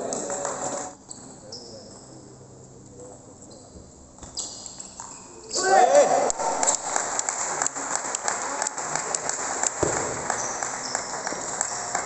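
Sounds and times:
spectators clapping: 0.0 - 1.0, 6.2 - 12.0.

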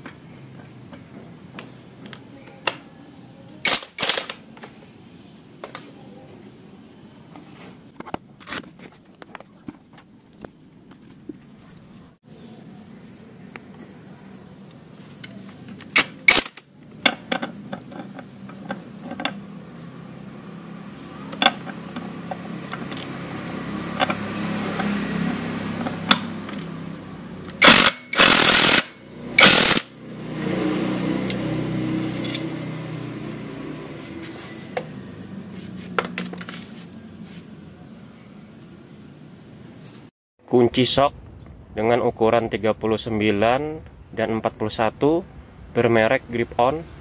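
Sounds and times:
clicks and knocks of parts handled: 15.2 - 19.4
impact wrench hammering: 27.6 - 30.0.

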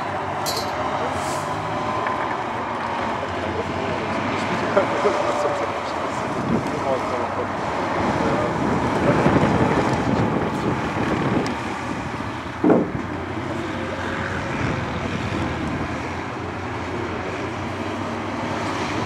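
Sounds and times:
tank diesel engine rumble: 0.0 - 19.0
wind on microphone: 7.8 - 16.2.

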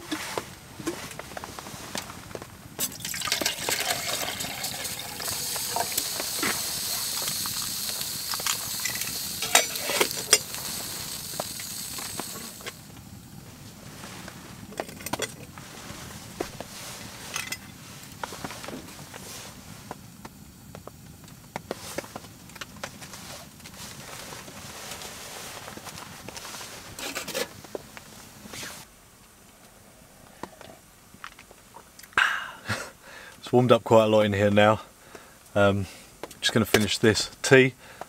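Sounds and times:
water heating with a hiss: 0.0 - 28.9.

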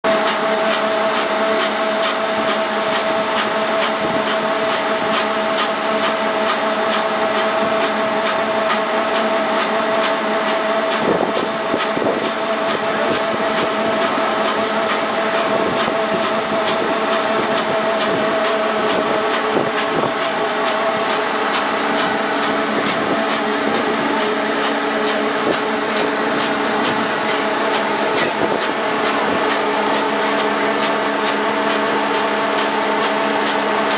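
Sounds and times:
feed auger droning and whining: 0.1 - 33.9.

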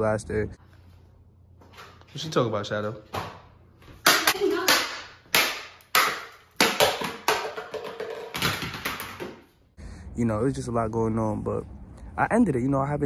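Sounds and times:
sharp impacts ringing in tiled room: 3.2 - 9.6.

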